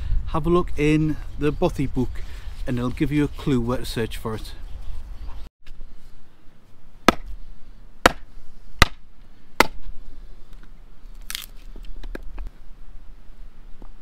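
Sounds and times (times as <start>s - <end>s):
axe chopping firewood: 7.0s - 7.4s, 8.0s - 9.9s.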